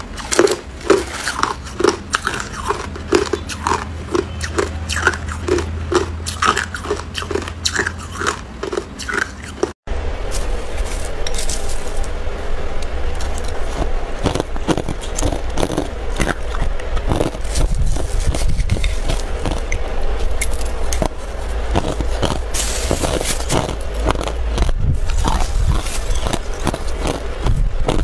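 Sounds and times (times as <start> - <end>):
steady low hum: 0.0 - 28.0
spoon scraping crushed ice: 17.1 - 19.7.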